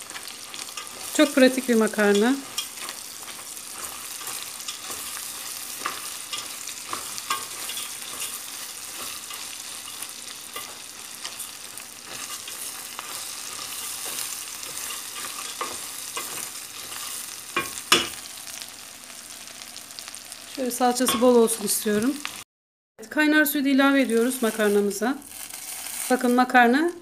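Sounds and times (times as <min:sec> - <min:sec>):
wooden spoon scraping pot: 0:00.0 - 0:18.2
food sizzling in oil: 0:00.0 - 0:22.5, 0:23.5 - 0:27.0.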